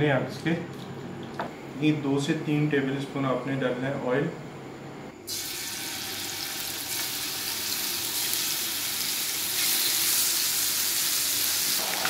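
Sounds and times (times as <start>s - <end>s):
chicken sizzling in hot oil: 5.3s - 12.0s.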